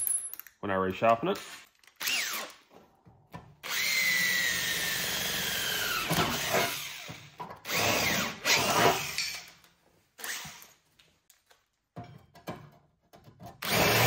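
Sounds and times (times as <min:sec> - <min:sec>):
cordless drill boring through steel: 0:02.0 - 0:02.6, 0:03.6 - 0:09.5, 0:10.2 - 0:10.7, 0:13.6 - 0:14.0.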